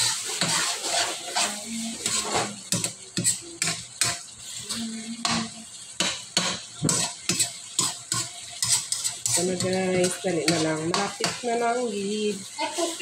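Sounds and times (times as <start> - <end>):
metal spoon scraping a wok: 0.0 - 5.4, 6.5 - 11.5
chicken sizzling in sauce: 0.0 - 13.0.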